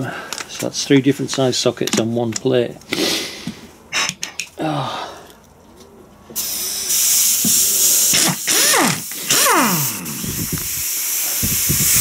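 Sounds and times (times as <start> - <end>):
air impact gun running: 6.4 - 12.0
hiss of exhaust air: 6.4 - 12.0.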